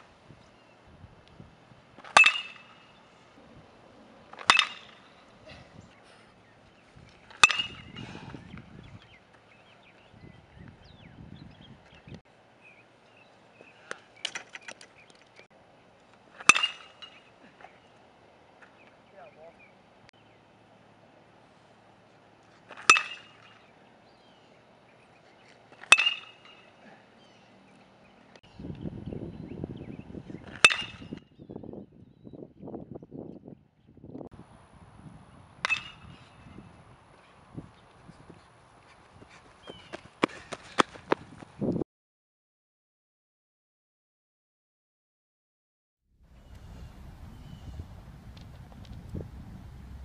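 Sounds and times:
metal bat hitting baseball: 2.0 - 2.9, 4.3 - 5.1, 7.3 - 8.0, 16.4 - 17.3, 22.7 - 23.6, 25.8 - 26.7, 30.6 - 31.2, 35.6 - 36.2.

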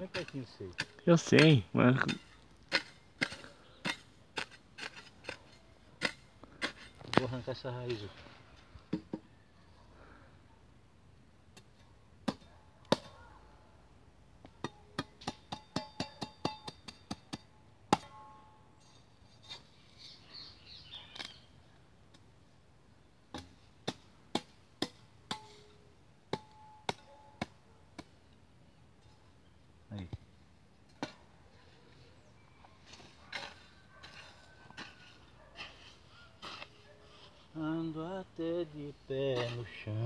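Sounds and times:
hand tool striking soil: 0.0 - 8.0, 14.6 - 18.2, 23.3 - 28.1, 32.9 - 36.8, 39.3 - 40.0.

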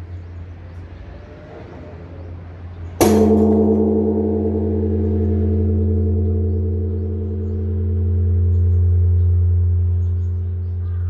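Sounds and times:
low bell hum: 3.0 - 11.0
temple bell struck and ringing: 3.0 - 11.0.

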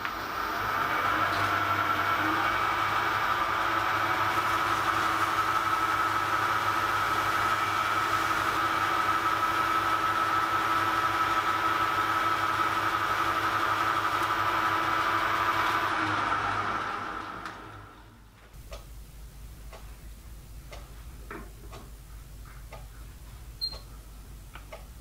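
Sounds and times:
lathe whining: 0.0 - 18.2.

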